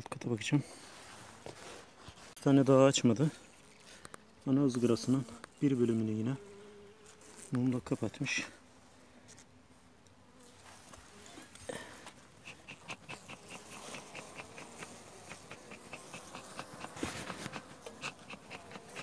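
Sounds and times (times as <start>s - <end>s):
honeybees humming: 10.1s - 19.0s.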